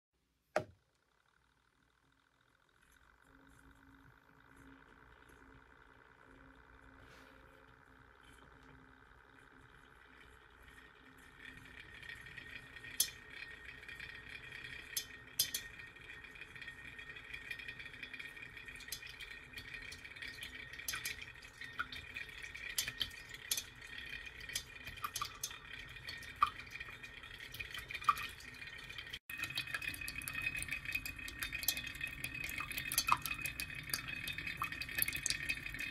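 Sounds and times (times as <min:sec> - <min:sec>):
magnetic stirrer whirring: 0:02.4 - 0:27.5.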